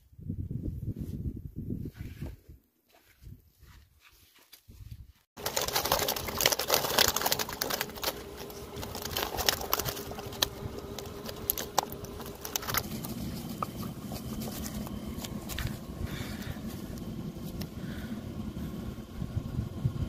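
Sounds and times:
fish flapping in mesh net: 0:05.4 - 0:16.5.

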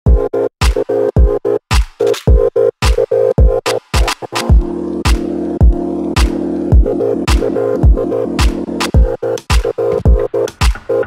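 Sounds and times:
chopped synth chord: 0:00.0 - 0:11.0
heavy kick drum: 0:00.1 - 0:10.9.

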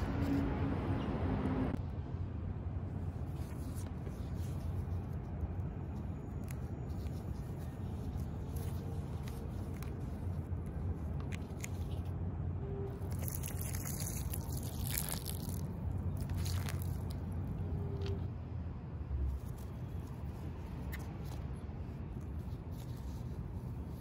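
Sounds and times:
low city rumble: 0:00.0 - 0:24.0
leaves rustling: 0:12.9 - 0:18.2
flower stems crunching and snapping: 0:13.0 - 0:17.4.

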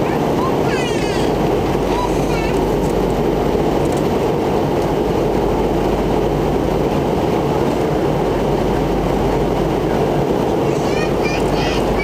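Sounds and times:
airliner cabin roar: 0:00.0 - 0:12.0.

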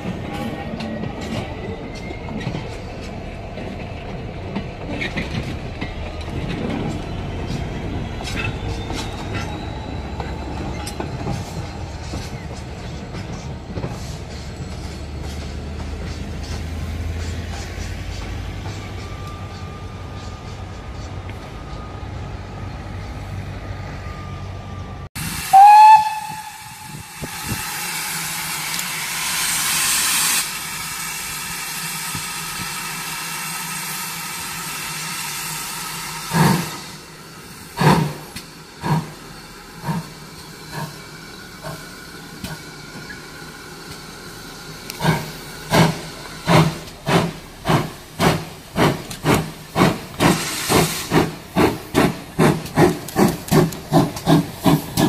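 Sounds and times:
steam locomotive whistle: 0:25.2 - 0:28.8
steam hissing: 0:25.2 - 0:55.0
locomotive exhaust chuffs: 0:25.5 - 0:55.0.

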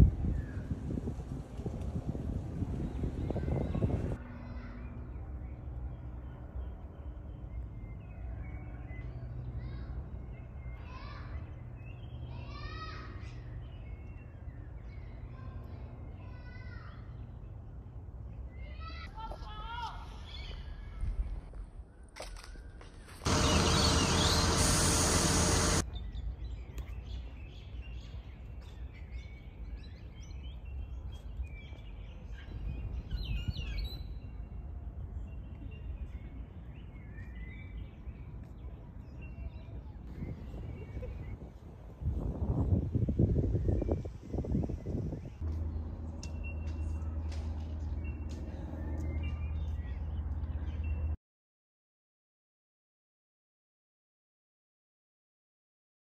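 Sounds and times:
low engine rumble: 0:23.2 - 0:25.9, 0:45.4 - 0:51.2
small birds chirping: 0:23.2 - 0:41.5
loud rush of noise: 0:23.3 - 0:25.8.

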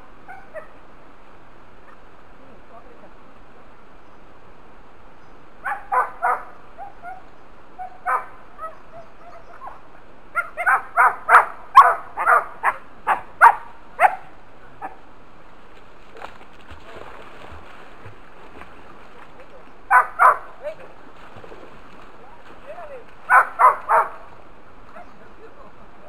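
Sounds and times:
dog barking: 0:05.6 - 0:07.2, 0:07.8 - 0:09.8, 0:10.4 - 0:15.0, 0:19.9 - 0:20.5, 0:23.3 - 0:24.3.

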